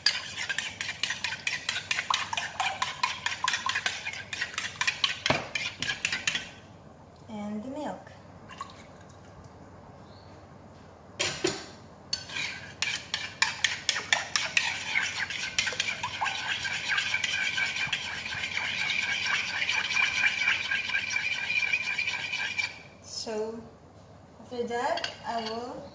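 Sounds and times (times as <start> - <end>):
whisk clinking in glass bowl: 0.0 - 6.5, 12.2 - 22.8.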